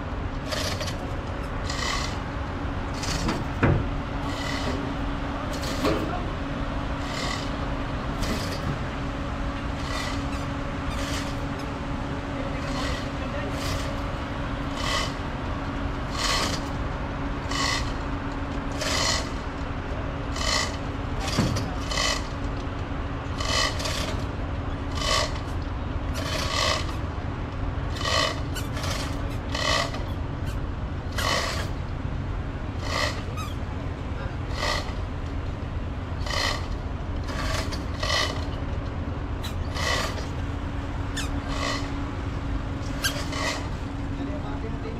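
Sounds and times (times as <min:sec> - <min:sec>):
ferry engines humming: 0:00.0 - 0:44.9
short rasping scrape: 0:00.5 - 0:02.2, 0:04.2 - 0:04.9, 0:05.5 - 0:06.2, 0:07.0 - 0:07.6, 0:09.8 - 0:11.5, 0:12.6 - 0:14.0, 0:14.7 - 0:15.2, 0:16.1 - 0:16.7, 0:17.4 - 0:18.0, 0:18.7 - 0:19.4, 0:20.3 - 0:22.4, 0:23.3 - 0:24.3, 0:24.9 - 0:27.0, 0:27.9 - 0:31.8, 0:32.8 - 0:33.6, 0:34.5 - 0:35.1, 0:36.2 - 0:38.6, 0:39.4 - 0:40.4, 0:41.2 - 0:42.0, 0:42.8 - 0:43.8.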